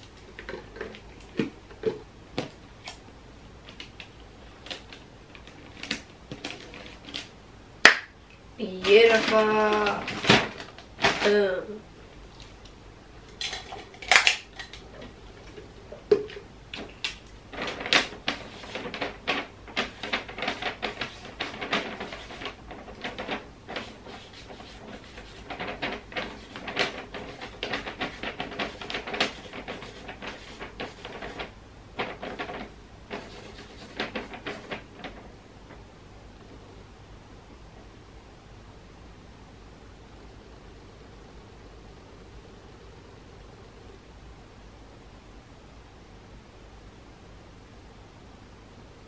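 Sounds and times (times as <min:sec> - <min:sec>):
marker scratching on paper: 0:23.7 - 0:31.5, 0:33.1 - 0:34.8.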